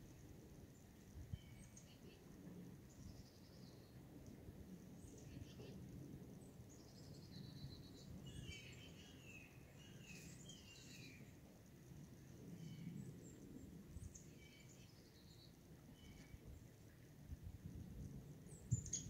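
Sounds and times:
faint bird chirps: 0:01.2 - 0:02.3, 0:05.0 - 0:05.8, 0:06.7 - 0:11.4, 0:12.4 - 0:16.6, 0:18.5 - 0:19.0.

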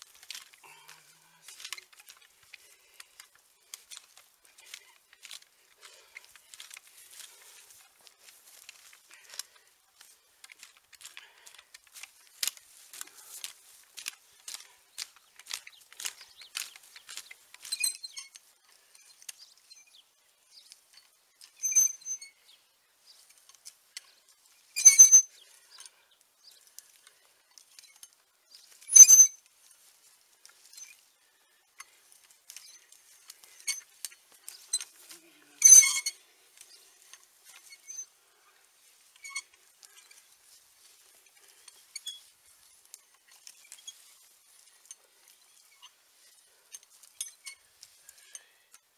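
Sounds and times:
metallic clinks: 0:46.7 - 0:48.9.

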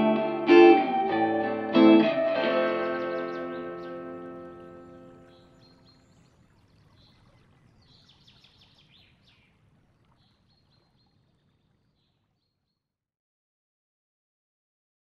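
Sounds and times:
small birds chirping: 0:02.0 - 0:11.2.

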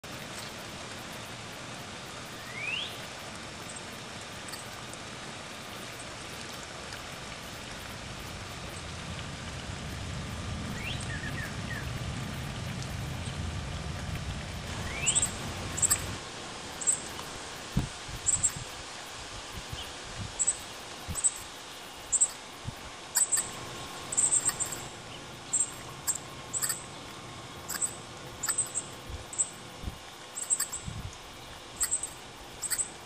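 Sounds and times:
steady hiss: 0:00.0 - 0:33.0
birds whistling: 0:02.5 - 0:03.0, 0:10.8 - 0:11.9, 0:14.8 - 0:16.2, 0:23.2 - 0:24.9, 0:25.5 - 0:26.8, 0:27.7 - 0:29.5, 0:30.4 - 0:30.8, 0:31.8 - 0:32.9
low rumble: 0:07.9 - 0:16.3
sharp high bird chips: 0:14.8 - 0:16.2, 0:23.2 - 0:24.9, 0:27.7 - 0:28.8, 0:30.4 - 0:30.8, 0:31.8 - 0:32.9.

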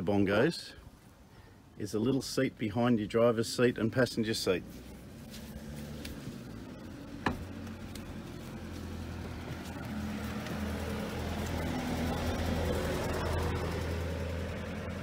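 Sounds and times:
vehicle engine humming: 0:03.4 - 0:15.0.

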